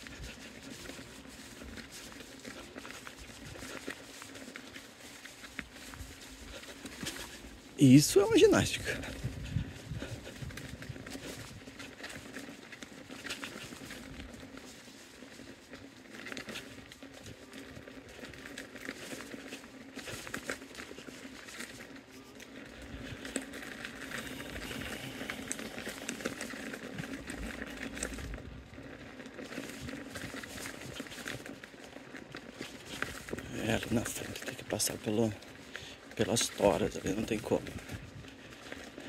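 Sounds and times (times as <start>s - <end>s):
tyre crunching over gravel: 0.0s - 39.0s
low motor hum: 21.8s - 30.9s.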